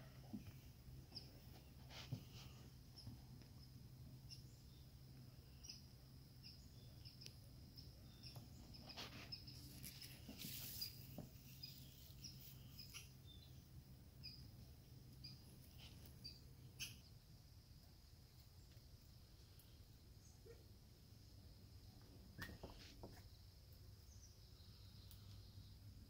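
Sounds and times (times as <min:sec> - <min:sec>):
faint high chirps: 0:02.9 - 0:17.3.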